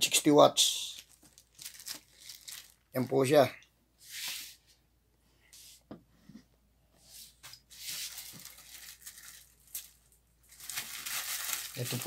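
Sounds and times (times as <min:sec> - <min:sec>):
plastic bag crinkling: 0:00.9 - 0:03.2, 0:08.0 - 0:12.0.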